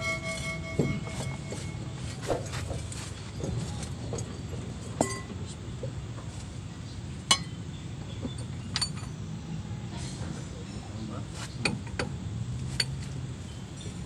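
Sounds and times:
metal tools clinking on wheel hub: 0.8 - 5.5, 7.3 - 7.6, 8.3 - 9.2, 11.6 - 14.0.

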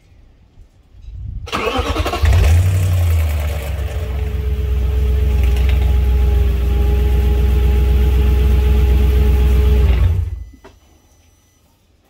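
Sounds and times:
engine whine: 1.5 - 10.8
car engine idling: 1.6 - 10.4.

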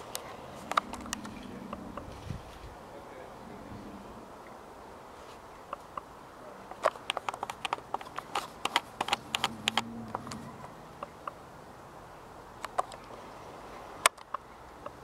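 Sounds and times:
sharp clicks and taps: 6.7 - 10.4.

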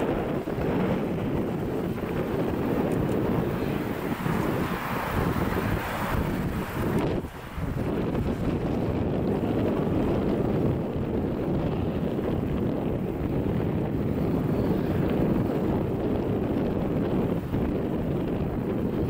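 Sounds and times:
distant jet engines rumbling: 0.0 - 19.0
wind buffeting microphone: 0.0 - 19.0.

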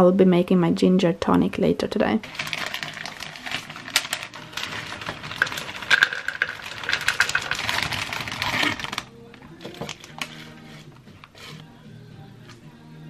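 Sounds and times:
fruit clattering into plastic cup: 2.2 - 11.6
plastic bags crinkling: 2.2 - 11.6.

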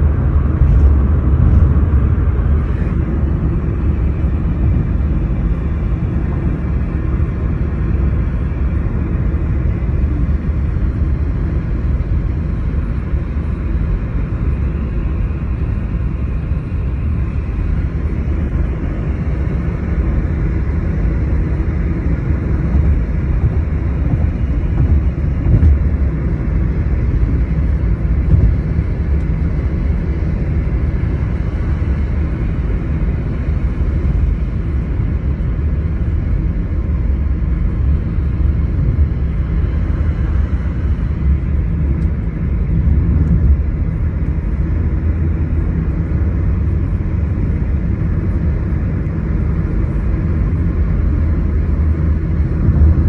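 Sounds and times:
vehicle cabin road rumble: 0.0 - 53.0.

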